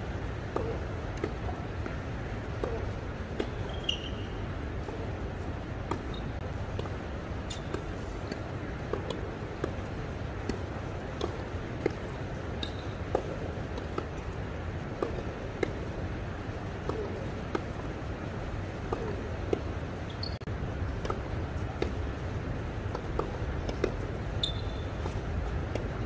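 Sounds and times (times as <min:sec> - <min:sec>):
tennis ball hit by rackets: 0:00.1 - 0:06.9, 0:18.9 - 0:19.6, 0:21.0 - 0:22.0, 0:22.9 - 0:24.0.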